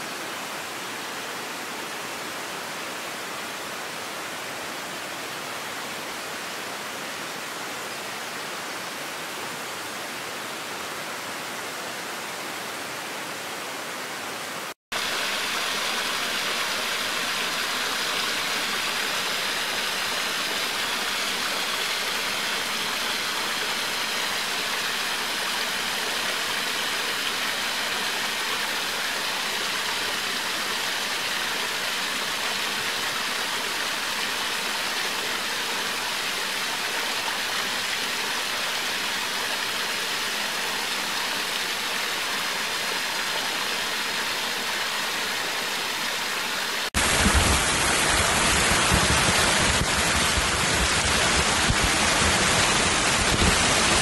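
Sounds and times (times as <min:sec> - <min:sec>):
waterfall rushing: 0:13.4 - 0:54.0.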